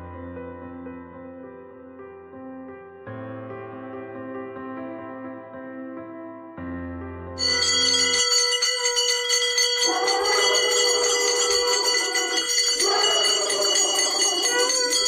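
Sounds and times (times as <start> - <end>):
soft piano music: 0.0 - 8.2
brass temple bells ringing: 7.4 - 15.0.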